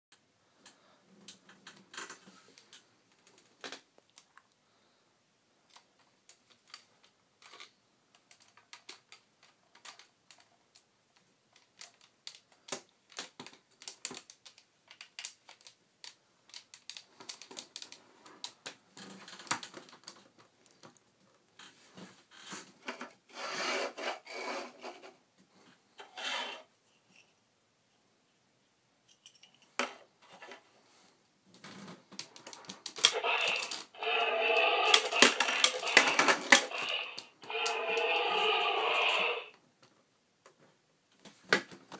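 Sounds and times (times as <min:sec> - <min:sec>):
plastic rubbing and scraping: 0:31.6 - 0:39.6
plastic toy clicks and taps: 0:32.8 - 0:38.2.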